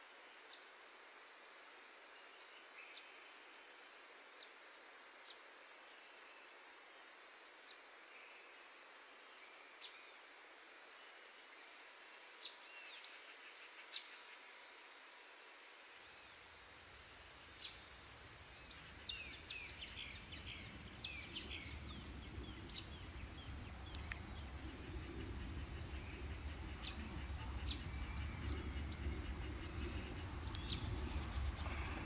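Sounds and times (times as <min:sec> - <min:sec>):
small birds chirping: 0:17.2 - 0:32.0
low rumble: 0:18.3 - 0:32.0.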